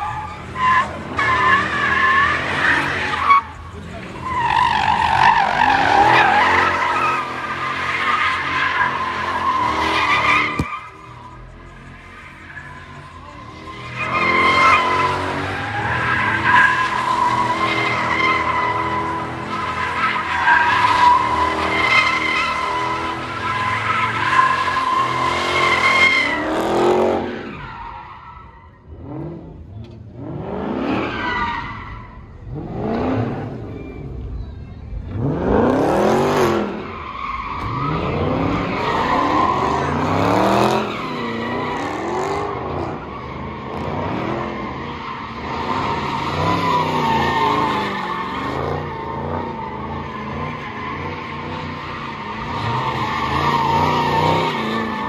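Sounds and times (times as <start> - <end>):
car engine revving: 28.8 - 55.0.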